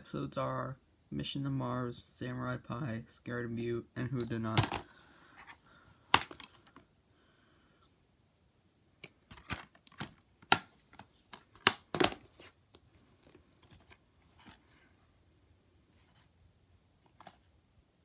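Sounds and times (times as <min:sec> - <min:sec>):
plastic cases clicking and tapping: 0:04.5 - 0:04.9, 0:06.1 - 0:06.9, 0:09.0 - 0:12.8.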